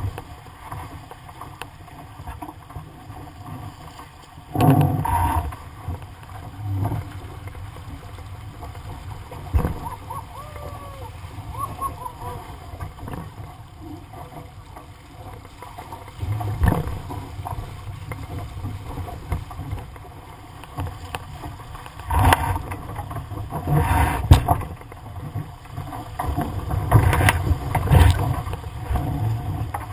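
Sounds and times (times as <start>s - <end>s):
water rushing and splashing: 0.0s - 29.9s
wind rumble on microphone: 16.2s - 29.9s.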